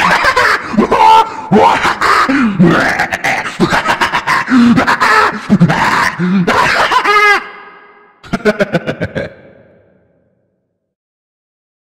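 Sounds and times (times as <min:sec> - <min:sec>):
people yelling groaning and laughing: 0:00.0 - 0:03.2, 0:03.8 - 0:07.7.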